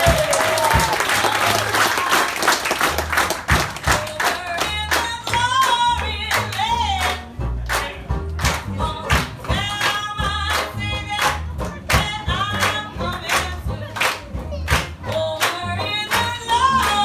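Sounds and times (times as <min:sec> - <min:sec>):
audience clapping along: 0:00.0 - 0:17.0
jazz band playing: 0:00.0 - 0:17.0
plucked double bass: 0:02.8 - 0:17.0
woman singing: 0:03.8 - 0:07.2, 0:08.7 - 0:14.1, 0:15.0 - 0:17.0.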